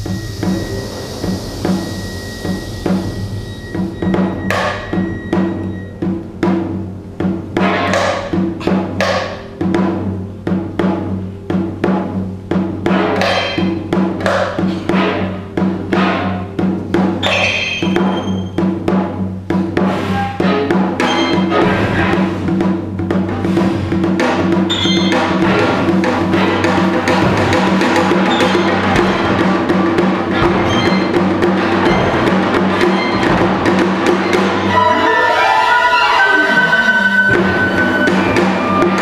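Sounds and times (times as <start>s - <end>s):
ensemble holding low notes: 0.0s - 6.3s
hourglass drum struck with sticks: 0.0s - 34.9s.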